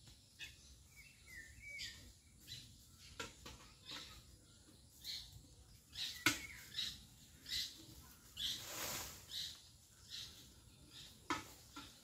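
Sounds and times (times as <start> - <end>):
brief rustle: 8.4 - 9.5.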